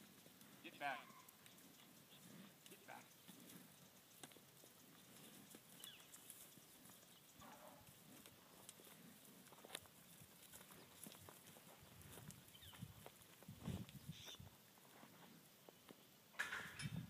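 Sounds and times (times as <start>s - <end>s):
faint footfalls on dry dirt: 0.0s - 16.1s.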